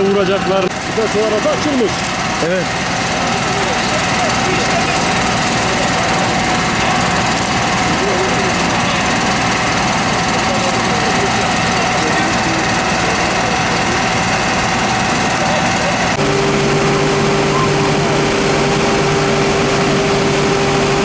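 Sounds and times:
constant whine: 0.0s - 21.0s
fire truck engine running hard: 0.0s - 21.0s
faint voices: 3.2s - 16.2s, 17.5s - 18.4s.

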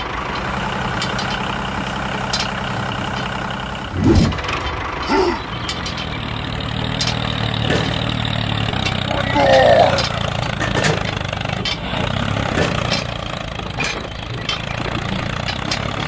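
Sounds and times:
pitch-sliding sounds: 3.9s - 6.1s.

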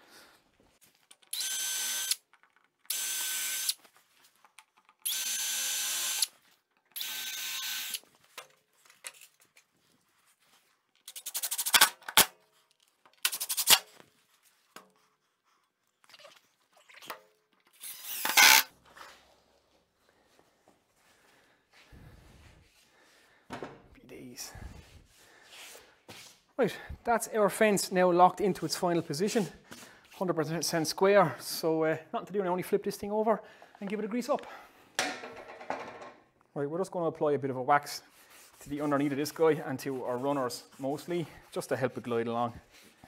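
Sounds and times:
cordless drill running: 1.3s - 2.2s, 2.9s - 3.8s, 5.0s - 6.3s, 7.0s - 8.0s, 17.8s - 18.7s
drill clicking driving screws: 5.0s - 6.3s, 17.8s - 18.7s.

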